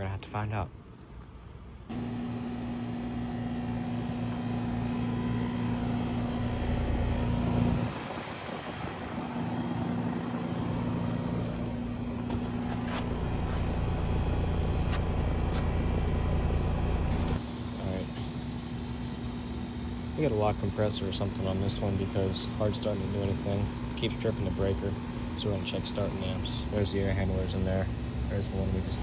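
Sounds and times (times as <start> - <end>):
air conditioner unit humming: 0.1 - 29.0
fan rattling: 1.9 - 17.4.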